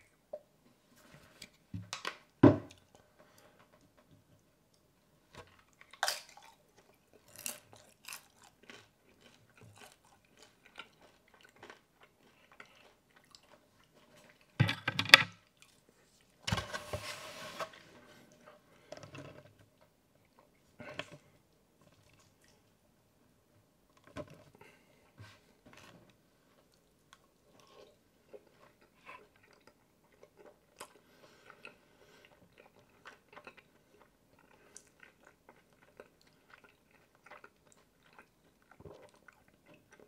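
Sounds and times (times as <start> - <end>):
tabletop clicks and knocks: 14.6 - 15.3.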